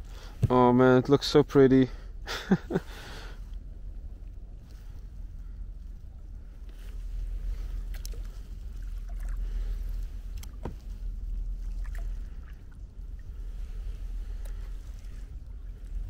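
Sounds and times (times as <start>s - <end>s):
wind rumble on microphone: 2.1s - 16.0s
paddle splashing: 6.8s - 16.0s.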